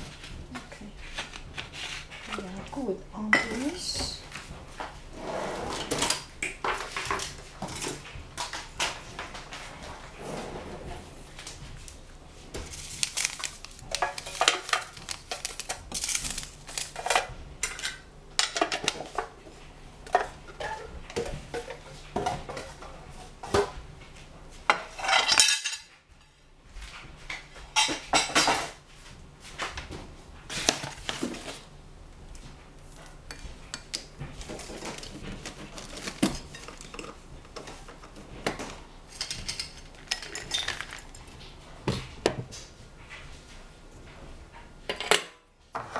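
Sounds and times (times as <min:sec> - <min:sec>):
kitchenware clattering on tiled counter: 0:03.3 - 0:04.5, 0:05.6 - 0:11.0, 0:12.6 - 0:23.8, 0:24.7 - 0:26.1, 0:27.3 - 0:28.8, 0:33.3 - 0:42.6, 0:44.9 - 0:45.9.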